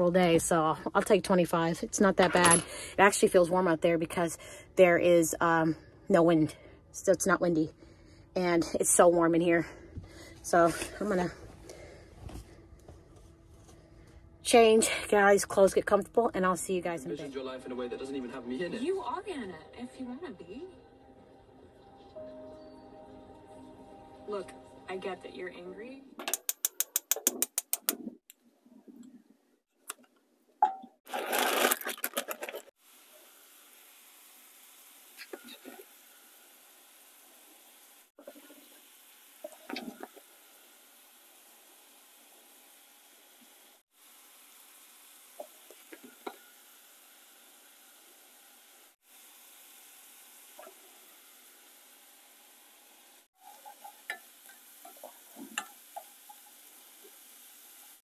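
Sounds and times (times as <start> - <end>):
vegetables frying: 31.1 - 58.0
butter sizzling in hot pan: 32.7 - 58.0.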